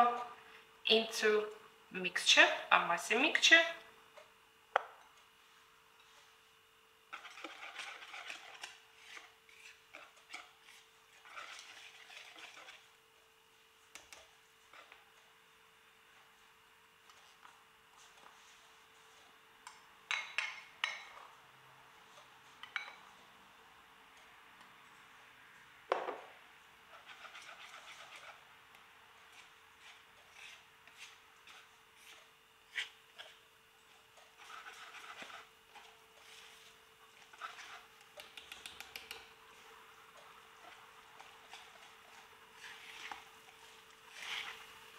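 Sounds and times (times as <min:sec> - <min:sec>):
wire whisk beating batter in bowl: 0:07.1 - 0:13.0, 0:26.9 - 0:28.4, 0:29.3 - 0:44.8.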